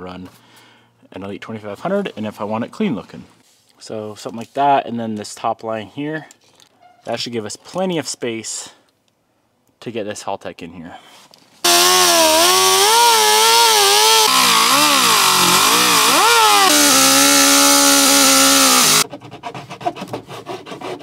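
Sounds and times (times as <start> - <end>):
air-powered cutting tool whining: 11.7 - 19.0
hand tool scraping plastic edge: 11.7 - 21.0.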